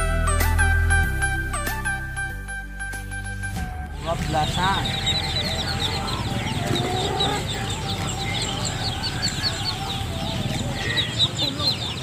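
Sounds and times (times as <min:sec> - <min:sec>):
chicks and ducklings peeping: 0:04.0 - 0:12.0.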